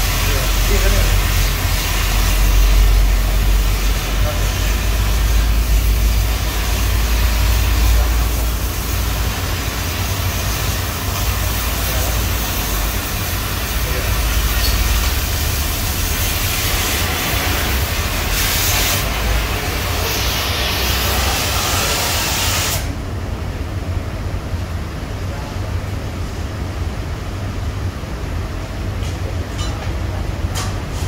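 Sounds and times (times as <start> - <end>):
cutting torch hissing: 0.0 - 23.0.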